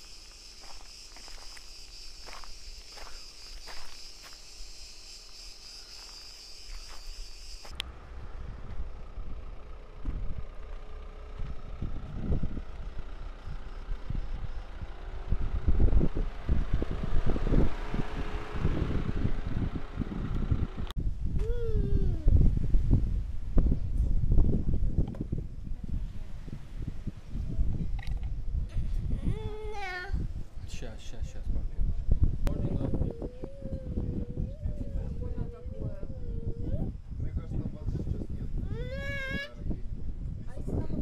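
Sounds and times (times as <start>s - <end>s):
footsteps on dry ground: 0.0s - 7.8s
cicadas buzzing: 0.0s - 8.1s, 9.0s - 20.7s, 32.1s - 37.2s
wind buffeting microphone: 11.4s - 41.0s.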